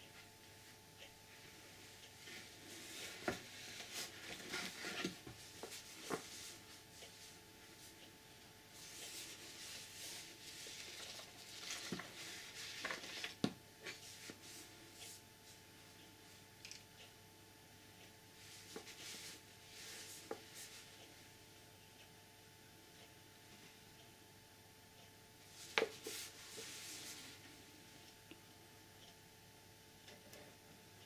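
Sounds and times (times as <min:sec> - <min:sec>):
paper and cardboard rustling: 0:02.3 - 0:06.6, 0:08.8 - 0:14.7.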